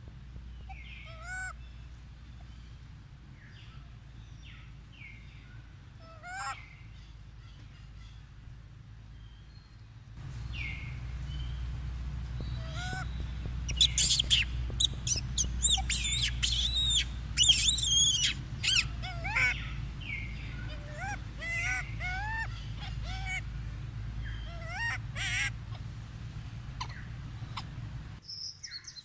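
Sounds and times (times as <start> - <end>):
monkeys squeaking and cooing: 0.7 - 1.6, 6.0 - 6.7, 12.3 - 28.2.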